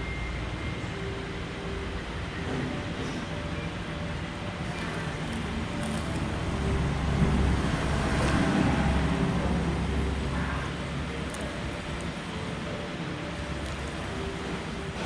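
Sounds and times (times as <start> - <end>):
road traffic rumble: 0.0 - 15.0
vehicle passing: 4.6 - 15.0.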